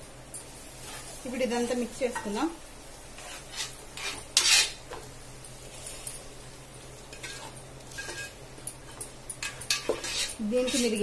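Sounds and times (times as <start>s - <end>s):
spatula scraping a pan: 0.8s - 1.2s, 3.2s - 5.0s, 7.1s - 11.0s.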